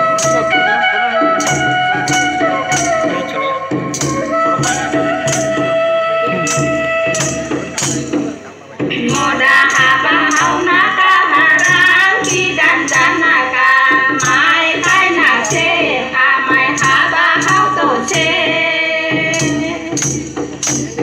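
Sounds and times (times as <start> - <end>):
drum beats: 0.0 - 21.0
jingling percussion: 0.0 - 21.0
voices singing a melody: 8.8 - 20.4.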